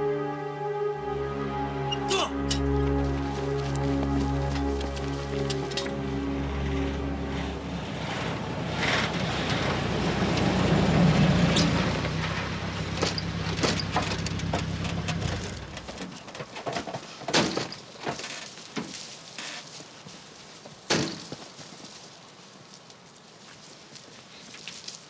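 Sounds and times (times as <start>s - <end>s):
rustling through shrubs: 2.6s - 9.6s, 14.2s - 25.0s
vehicle engine running: 2.9s - 16.0s.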